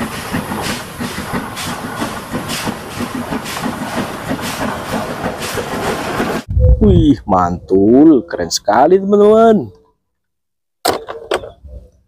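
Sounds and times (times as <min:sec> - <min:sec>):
steam hissing: 0:00.0 - 0:06.5
steam locomotive chuffing: 0:00.0 - 0:06.5.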